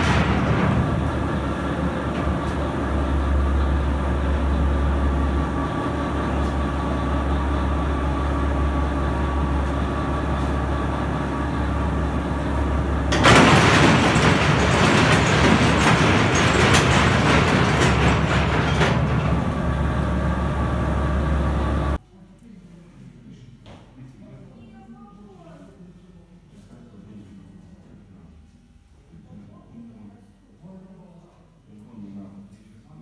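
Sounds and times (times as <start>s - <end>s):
dense rushing clatter: 0.0s - 6.9s, 12.1s - 21.0s
loading machine hum: 0.0s - 22.0s.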